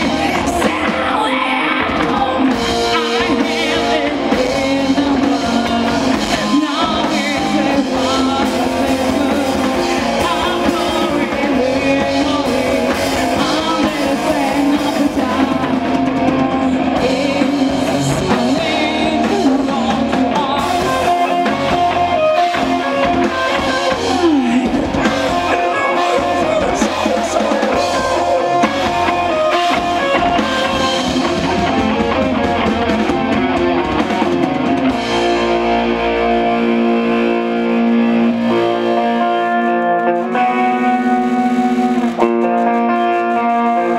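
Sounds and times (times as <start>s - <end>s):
woman singing: 0.0s - 31.8s
rock band playing live: 0.0s - 43.9s.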